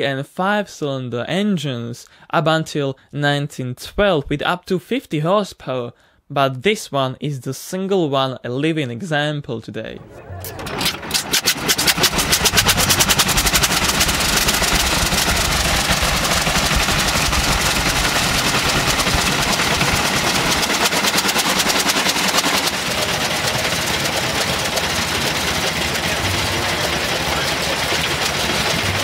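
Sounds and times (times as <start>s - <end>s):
rotary engine running: 10.0s - 29.0s.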